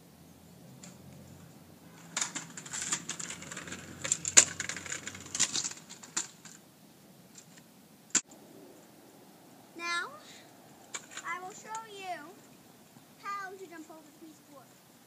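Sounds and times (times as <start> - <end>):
scooter wheels rattling on bricks: 0.8 - 6.6, 10.9 - 12.3
scooter landing clack: 2.0 - 6.5.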